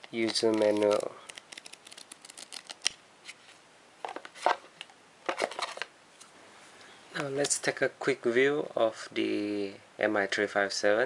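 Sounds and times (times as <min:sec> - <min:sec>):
paper pages riffled: 0:00.1 - 0:02.9.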